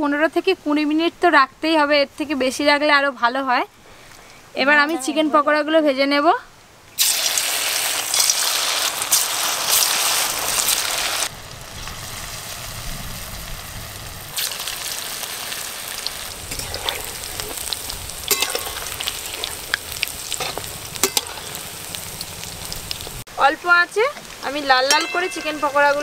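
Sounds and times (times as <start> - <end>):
food sizzling in hot oil: 7.0 - 26.0.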